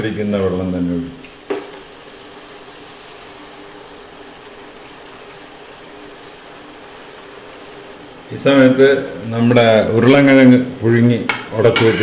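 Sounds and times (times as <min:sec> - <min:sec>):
pan hissing: 0:00.0 - 0:12.0
light knock: 0:01.5 - 0:01.8.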